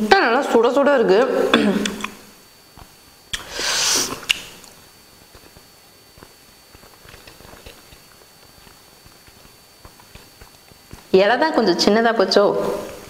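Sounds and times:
person chewing: 2.8s - 11.1s.

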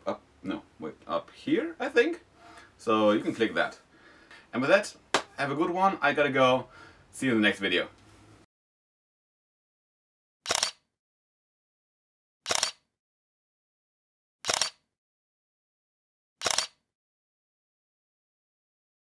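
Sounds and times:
camera shutter clicks: 10.5s - 10.9s, 12.5s - 12.8s, 14.4s - 14.8s, 16.4s - 16.8s.

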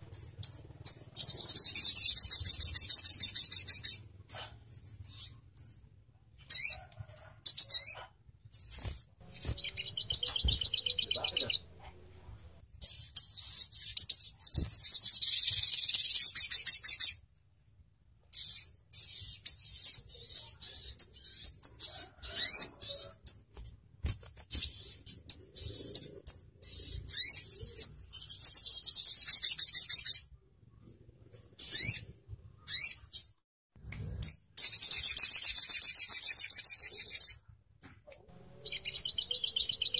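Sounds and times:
bird rapid trills: 0.0s - 5.8s, 7.4s - 11.7s, 38.6s - 39.9s
bird chirping: 0.0s - 17.2s, 18.2s - 33.4s, 34.0s - 39.9s.

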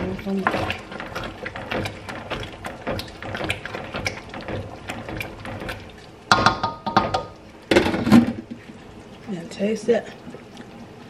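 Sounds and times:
spoon stirring and scraping pot: 0.0s - 8.8s.

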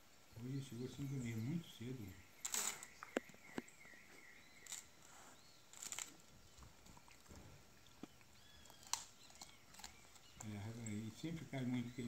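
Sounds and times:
animal chewing food: 4.4s - 12.0s.

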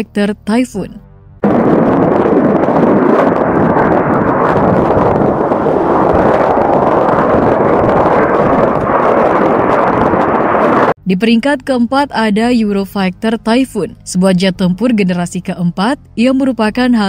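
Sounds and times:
fighter jet engines roaring: 1.4s - 11.0s.

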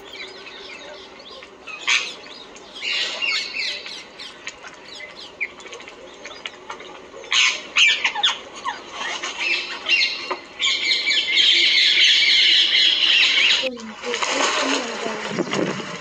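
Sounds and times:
birds chattering and squawking: 0.0s - 13.8s.

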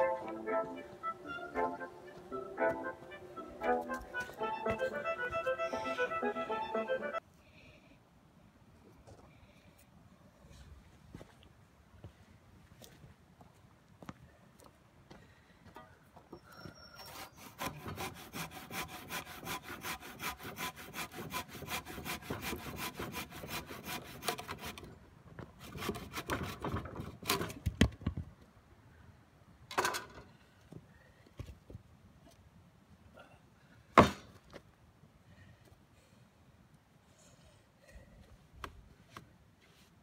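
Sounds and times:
handsaw cutting wood: 17.1s - 24.9s, 25.6s - 27.5s.

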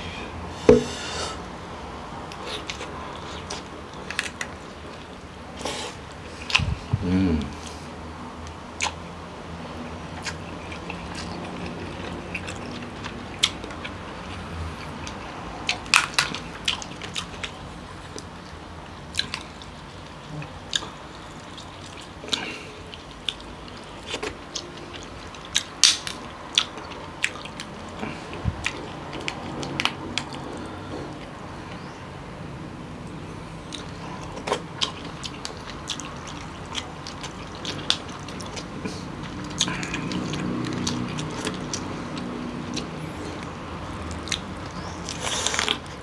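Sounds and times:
chewing and sucking: 33.0s - 46.0s.

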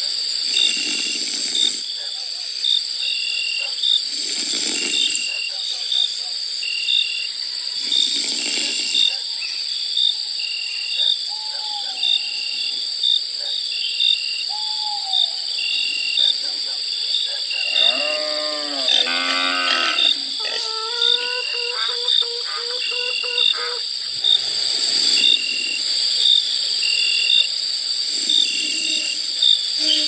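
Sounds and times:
insects chirring: 0.0s - 30.0s
drawn-out animal call: 17.7s - 23.8s.

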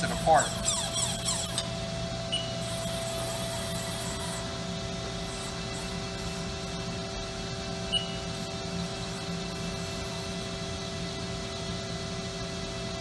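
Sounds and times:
lathe humming: 0.0s - 7.3s.

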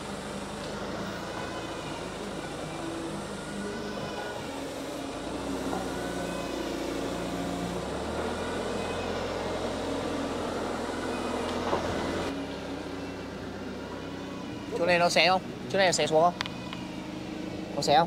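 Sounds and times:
electric saw cutting timber: 0.0s - 12.3s.

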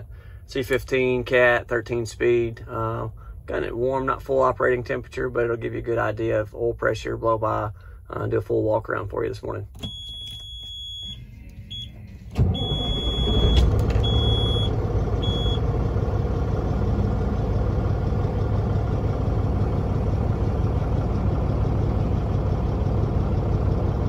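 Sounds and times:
diesel engine starting and idling: 0.0s - 9.0s, 9.6s - 24.0s
dash warning buzzer beeps: 9.8s - 15.6s.

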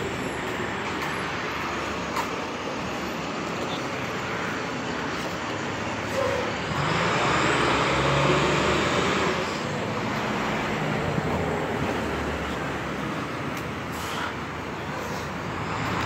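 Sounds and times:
garbage truck engine: 0.0s - 16.0s
street traffic: 0.0s - 16.0s.

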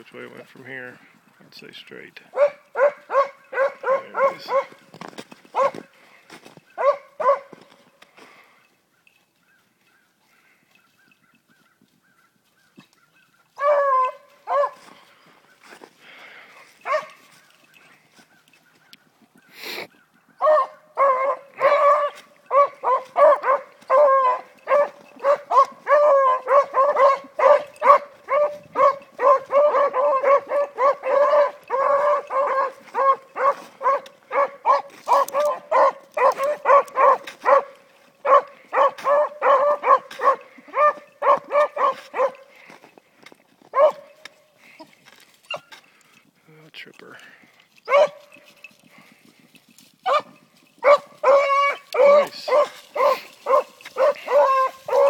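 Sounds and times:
dog baying and barking: 2.3s - 4.9s, 5.5s - 5.9s, 6.8s - 7.7s, 13.6s - 15.0s, 16.8s - 18.0s, 20.4s - 42.7s, 43.7s - 44.3s, 47.8s - 48.4s, 50.0s - 55.0s.

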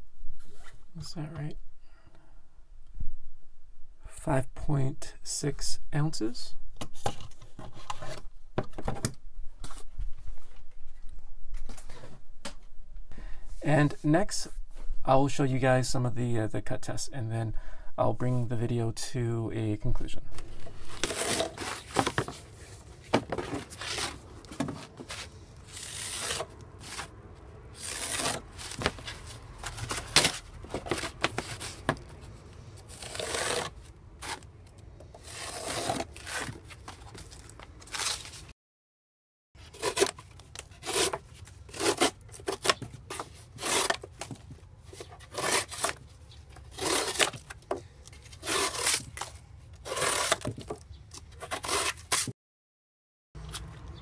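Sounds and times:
knife slicing cardboard: 20.9s - 27.1s, 27.8s - 34.5s, 35.2s - 37.3s, 39.6s - 44.4s, 45.0s - 46.0s, 46.6s - 50.8s, 51.4s - 52.3s.

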